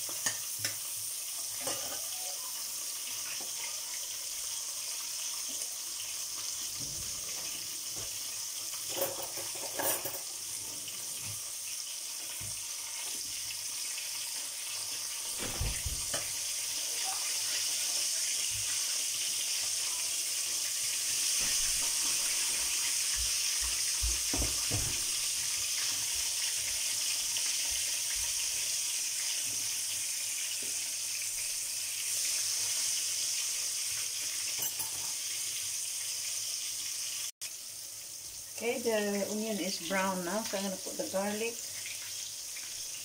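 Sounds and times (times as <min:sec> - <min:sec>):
oil sizzling in a pan: 0:00.0 - 0:43.0.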